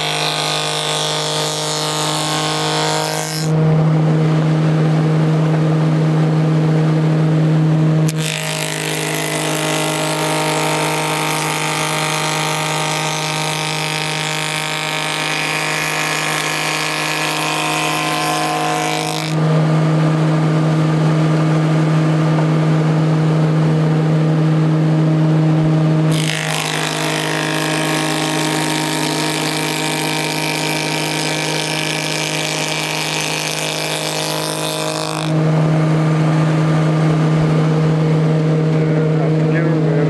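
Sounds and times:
cutter cutting wooden board: 0:00.0 - 0:03.9, 0:07.8 - 0:20.3, 0:25.8 - 0:37.4
table saw humming: 0:00.0 - 0:40.0.

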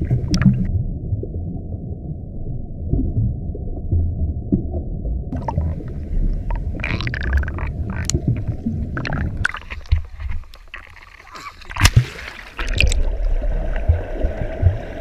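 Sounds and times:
crackling clicks underwater: 0:00.0 - 0:00.7, 0:04.5 - 0:14.9
underwater rumble: 0:00.0 - 0:15.0
water bubbling: 0:00.0 - 0:15.0.

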